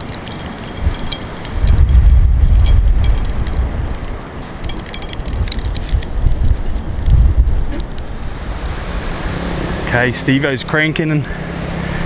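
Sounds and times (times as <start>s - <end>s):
light crackling ticks: 0.0s - 9.0s
wind buffeting microphone: 0.0s - 10.5s
heavy uneven rumble: 0.0s - 12.0s.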